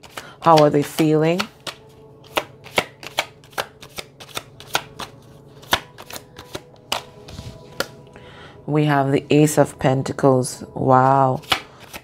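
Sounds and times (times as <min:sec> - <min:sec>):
cards being shuffled: 0:00.0 - 0:08.0, 0:11.4 - 0:12.0.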